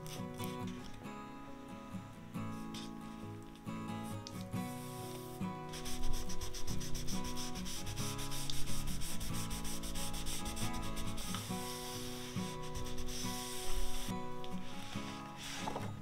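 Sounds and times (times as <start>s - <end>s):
cloth rubbing over paper: 4.7s - 16.0s.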